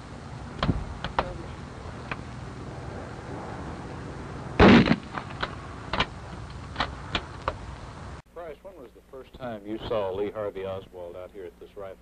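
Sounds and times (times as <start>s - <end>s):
rifle shot: 4.6s - 7.3s.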